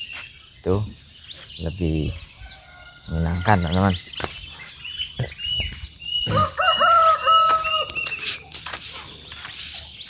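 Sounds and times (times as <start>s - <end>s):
small bird calling: 0.0s - 10.0s
rooster crowing: 2.4s - 3.8s, 6.2s - 8.3s.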